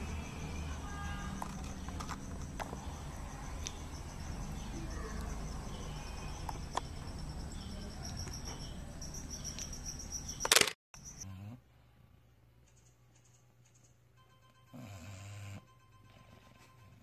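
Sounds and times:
high pulsed chirping: 2.2s - 11.2s.

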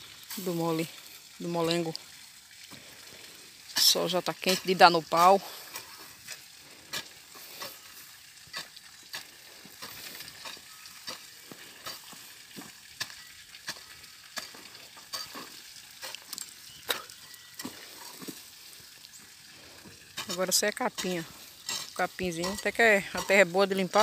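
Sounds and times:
hoe chopping and scraping soil: 3.8s - 18.5s, 19.8s - 23.4s.

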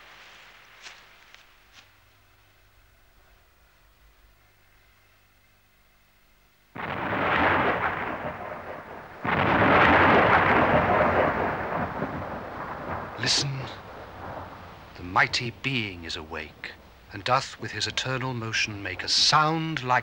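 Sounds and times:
thunder claps: 6.8s - 20.0s.

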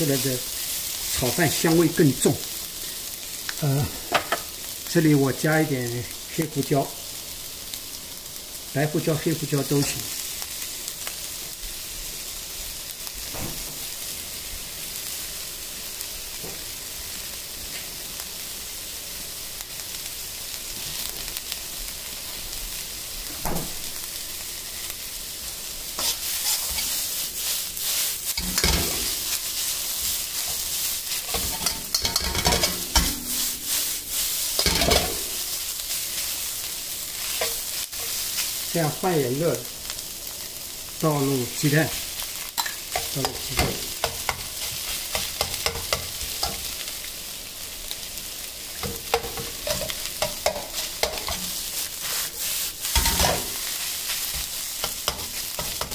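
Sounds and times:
rice sizzling in a wok: 0.0s - 55.9s
metal ladle scraping a wok: 26.0s - 27.2s, 28.4s - 29.2s, 30.4s - 35.4s, 48.8s - 53.6s.

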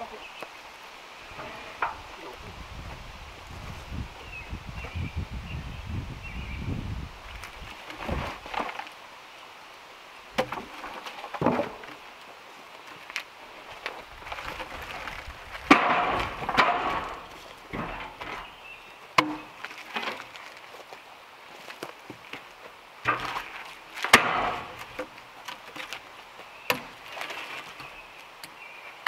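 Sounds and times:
wooden knocks and clatter: 10.4s - 12.0s, 13.8s - 18.5s, 21.7s - 26.1s.

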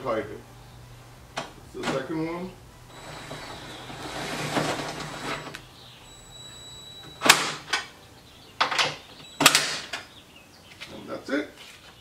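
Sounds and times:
power drill short bursts: 2.9s - 7.7s.

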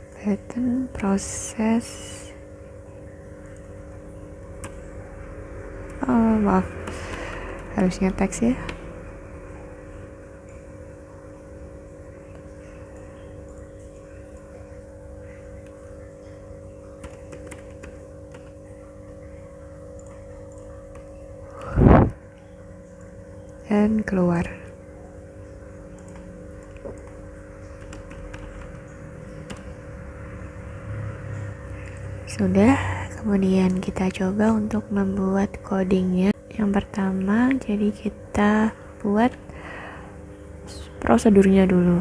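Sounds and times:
low background hum: 0.0s - 42.0s
keyboard keystrokes: 17.0s - 18.6s, 25.9s - 29.8s.

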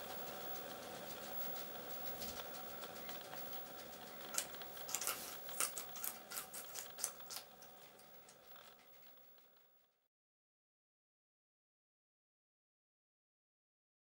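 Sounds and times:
guinea pigs crunching food: 0.0s - 9.9s.

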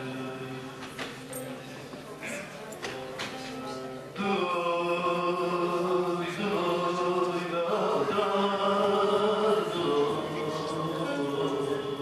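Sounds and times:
man singing folk song: 4.2s - 12.0s.

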